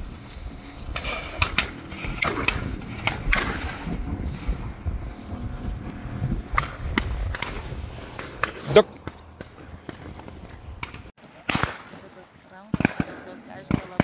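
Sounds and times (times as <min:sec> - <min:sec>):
dog rustling through grass: 0:03.5 - 0:10.7.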